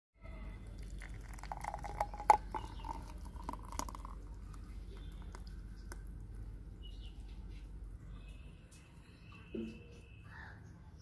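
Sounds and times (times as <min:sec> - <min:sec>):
thick liquid pouring into glass: 0:00.5 - 0:06.3.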